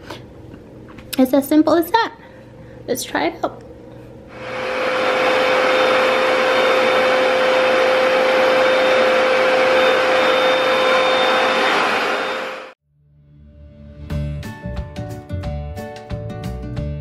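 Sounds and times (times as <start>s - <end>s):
carpet cleaner running: 4.3s - 12.8s.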